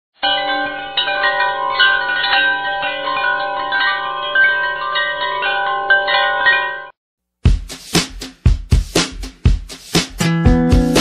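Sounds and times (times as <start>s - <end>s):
bell-like chime jingle: 0.2s - 7.0s.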